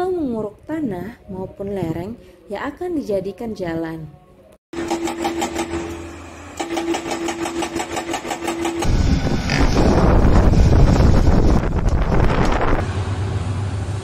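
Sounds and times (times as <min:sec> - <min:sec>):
hydraulic breaker hammer pounding rock: 0:04.8 - 0:06.0, 0:06.6 - 0:08.9.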